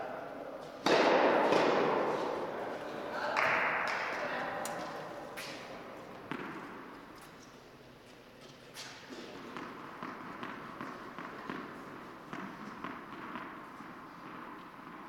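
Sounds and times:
tennis ball bouncing on court: 0:00.8 - 0:02.5, 0:03.4 - 0:07.3, 0:08.9 - 0:15.0.

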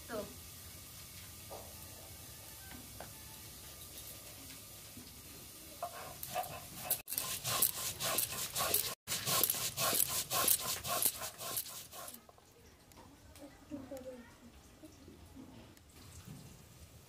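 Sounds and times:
stone scraping on stone: 0:05.9 - 0:12.2.

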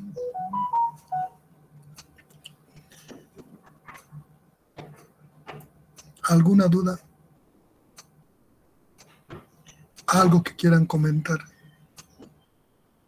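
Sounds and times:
electronic notification chime: 0:00.2 - 0:01.4.

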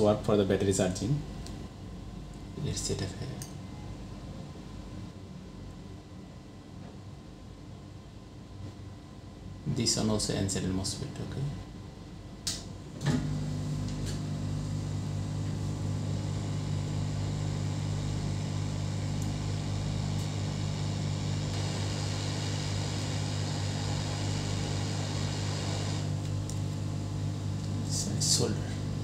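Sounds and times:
low fan hum: 0:00.0 - 0:29.0
hot air blower hiss: 0:13.1 - 0:29.0.

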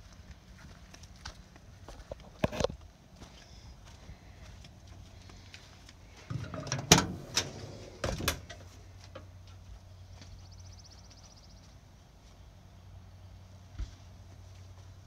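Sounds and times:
truck door metal clacks: 0:06.3 - 0:08.6.

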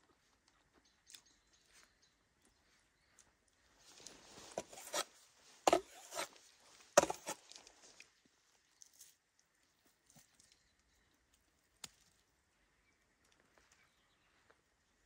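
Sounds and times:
wood scraping: 0:04.3 - 0:06.4, 0:07.0 - 0:07.6.

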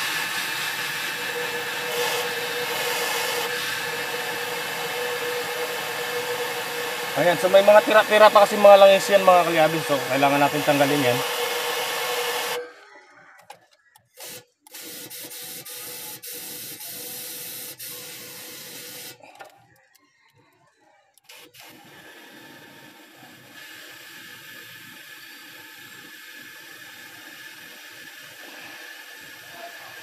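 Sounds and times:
compressed air blow gun hissing: 0:00.0 - 0:12.6.

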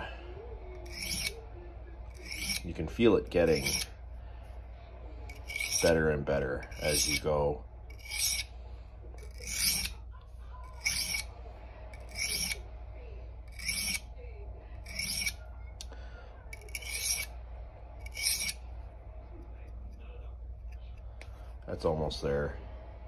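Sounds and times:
knife scraping on sharpening stone: 0:00.8 - 0:01.4, 0:02.1 - 0:03.9, 0:05.3 - 0:06.0, 0:06.6 - 0:07.3, 0:07.9 - 0:08.5, 0:09.2 - 0:10.0, 0:10.6 - 0:11.3, 0:12.0 - 0:12.6, 0:13.5 - 0:14.1, 0:14.8 - 0:15.4, 0:16.5 - 0:17.3, 0:18.0 - 0:18.6.

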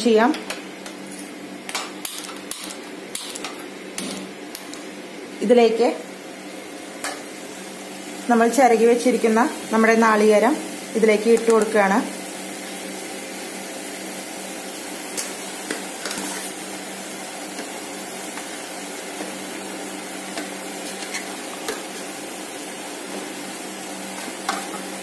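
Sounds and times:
stove flame humming: 0:00.0 - 0:25.0.

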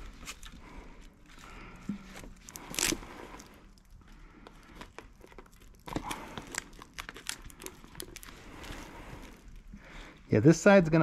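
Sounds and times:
plastic wrap crinkling: 0:00.0 - 0:10.3.

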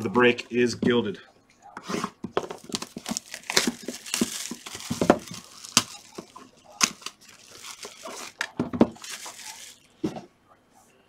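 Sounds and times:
plastic wrap crinkling and tearing: 0:02.4 - 0:10.0.

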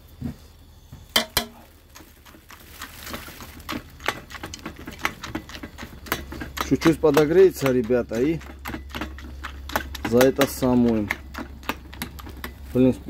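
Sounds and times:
sharp metal knocks: 0:01.1 - 0:01.6.

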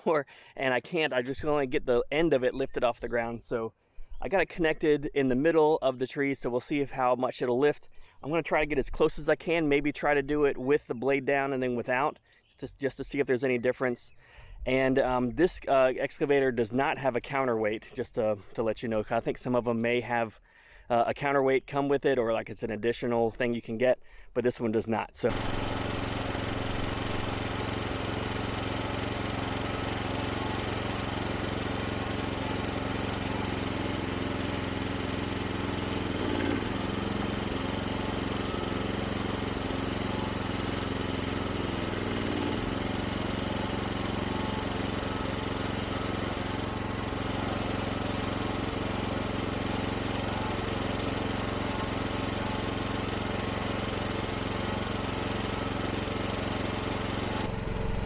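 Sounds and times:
small engine running: 0:25.2 - 0:58.0.

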